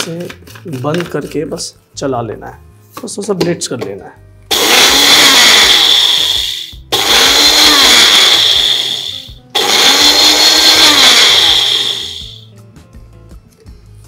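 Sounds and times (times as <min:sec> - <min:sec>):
mixer grinder motor: 0:04.5 - 0:12.5.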